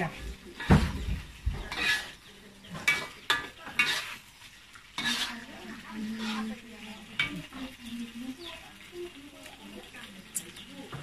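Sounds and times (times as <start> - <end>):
spatula scraping a wok: 0.0 - 7.8
food sizzling: 0.0 - 11.0.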